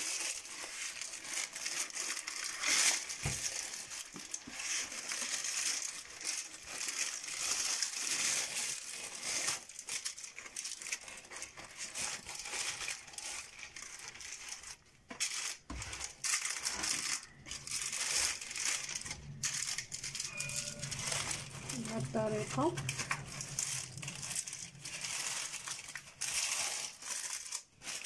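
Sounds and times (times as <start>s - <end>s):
baking paper crinkling: 0.0s - 28.0s.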